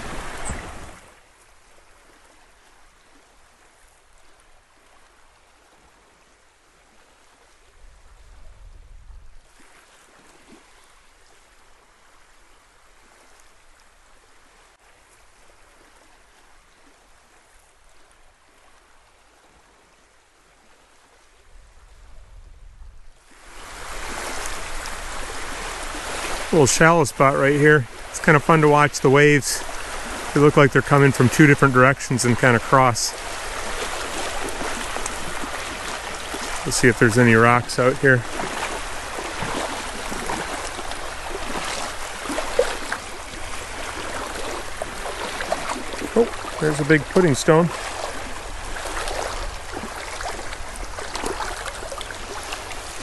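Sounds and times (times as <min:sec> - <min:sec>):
waves lapping on pebble shore: 0:00.0 - 0:01.2, 0:23.2 - 0:53.0.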